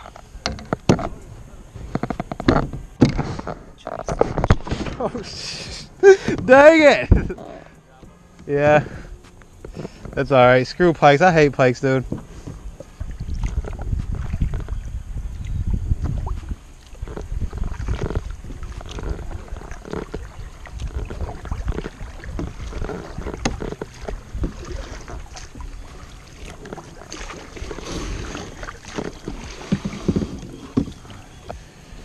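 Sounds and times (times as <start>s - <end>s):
kayak paddle splashing: 8.8s - 32.0s
paddle knocks: 17.0s - 31.6s.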